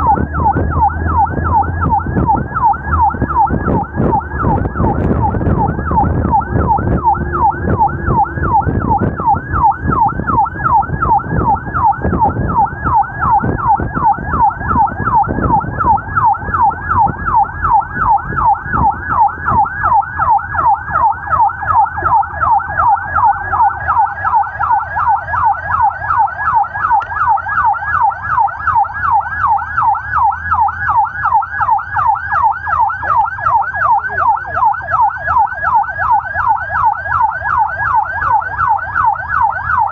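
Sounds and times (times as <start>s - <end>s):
road and engine rumble: 0.0s - 39.9s
siren yelping: 0.0s - 39.9s.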